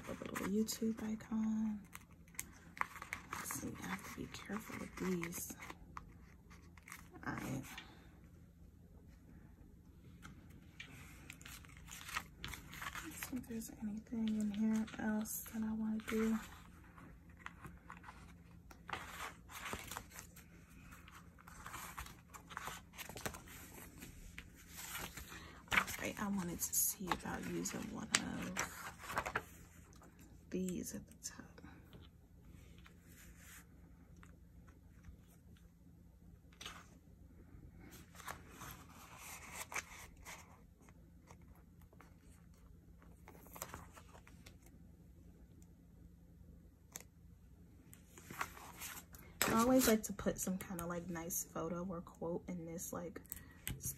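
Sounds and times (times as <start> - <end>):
sticker sheets rustling: 10.8 - 29.6.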